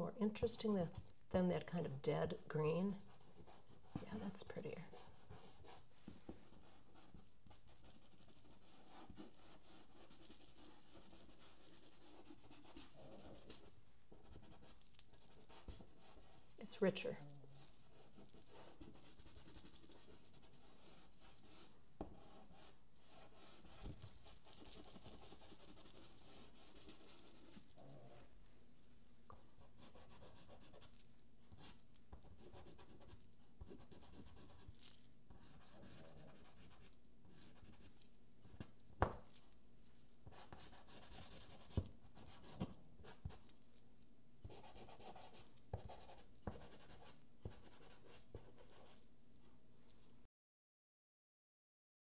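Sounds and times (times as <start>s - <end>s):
pastel stick scratching paper: 6.5s - 16.6s, 17.6s - 27.8s, 31.6s - 34.7s, 40.3s - 43.4s, 44.5s - 49.0s.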